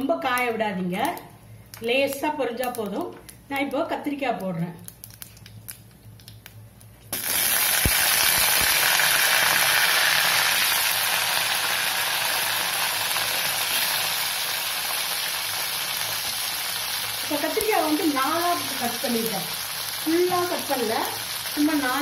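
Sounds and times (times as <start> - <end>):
oil sizzling and crackling: 4.8 - 22.0.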